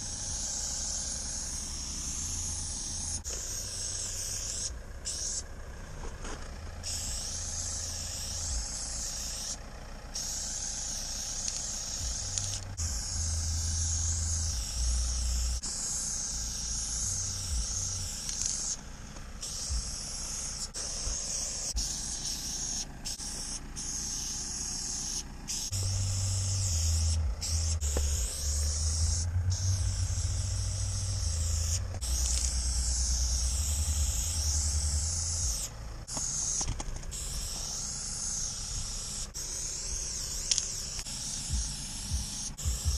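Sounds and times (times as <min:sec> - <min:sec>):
spray paint can hissing: 0:00.0 - 0:42.9
low rumble: 0:25.8 - 0:36.1.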